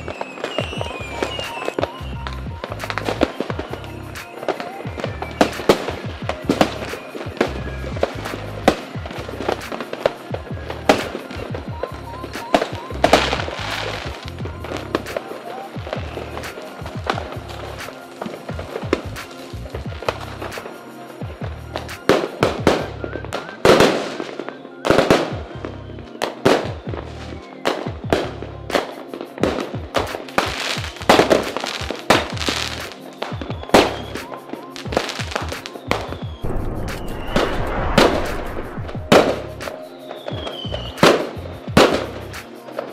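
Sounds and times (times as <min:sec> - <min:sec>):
fireworks bangs: 0:00.0 - 0:02.0, 0:27.6 - 0:42.0
crackling hiss: 0:00.0 - 0:42.9
music with low beat: 0:00.0 - 0:42.9.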